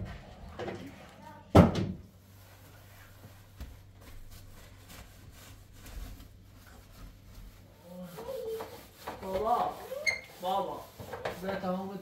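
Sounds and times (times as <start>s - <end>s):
brush scrubbing sheet metal: 4.1s - 12.0s.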